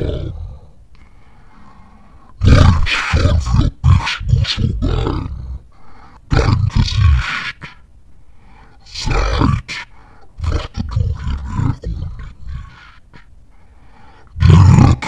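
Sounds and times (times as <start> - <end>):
deep growling man reciting: 0.0 - 0.8, 2.4 - 7.9, 8.7 - 13.3, 14.2 - 15.0.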